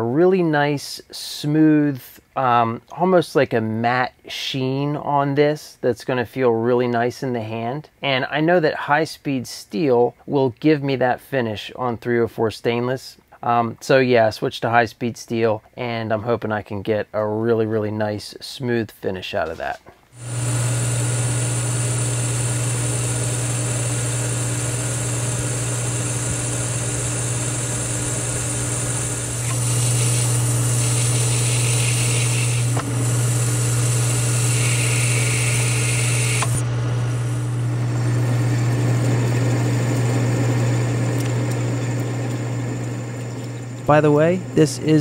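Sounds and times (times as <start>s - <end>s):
high metal cutting sound: 20.2s - 37.7s
lathe humming: 20.2s - 45.0s.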